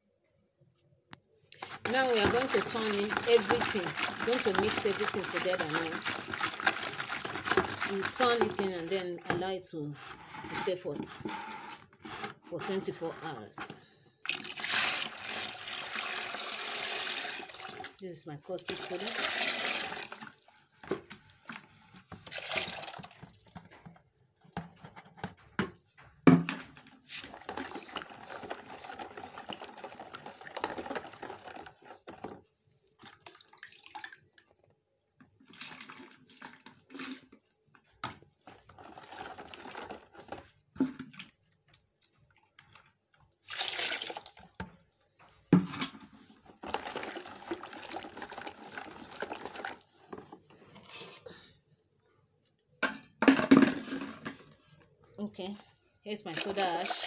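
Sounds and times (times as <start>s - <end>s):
liquid sloshing in bucket: 1.6s - 11.3s, 11.9s - 18.0s, 18.7s - 25.3s, 26.4s - 34.7s, 35.4s - 41.5s, 42.2s - 51.0s, 56.3s - 57.0s
stick knocking against bucket: 24.6s - 26.8s.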